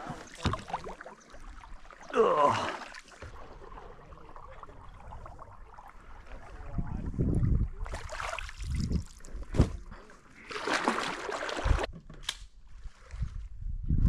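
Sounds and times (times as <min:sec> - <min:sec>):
paddle sloshing water: 0:00.0 - 0:11.9.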